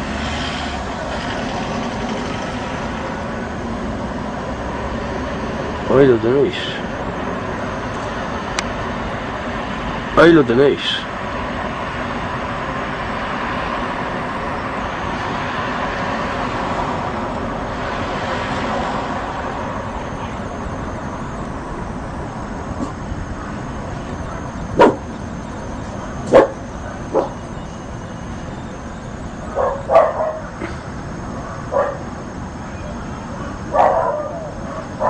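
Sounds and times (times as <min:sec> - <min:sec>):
city traffic hum: 0:00.0 - 0:35.0
dog barking: 0:24.2 - 0:25.1, 0:26.3 - 0:27.4, 0:29.5 - 0:30.6, 0:31.5 - 0:32.1, 0:33.7 - 0:35.0.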